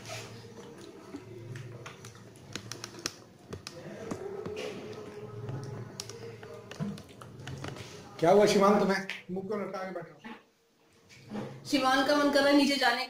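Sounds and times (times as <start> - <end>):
faint murmur of voices: 0.0 - 9.3.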